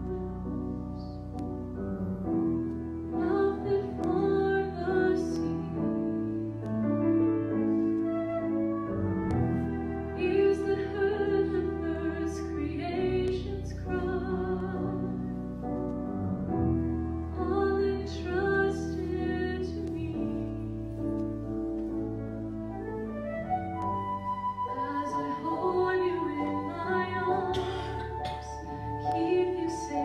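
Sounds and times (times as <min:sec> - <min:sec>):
woman singing: 0:03.2 - 0:06.4, 0:09.9 - 0:15.2, 0:17.3 - 0:20.6, 0:24.6 - 0:30.0.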